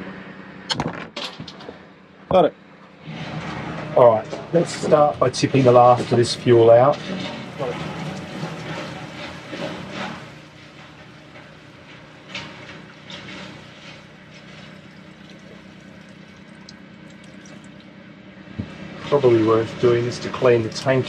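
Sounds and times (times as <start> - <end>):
fuel pouring and trickling: 4.7 - 21.0.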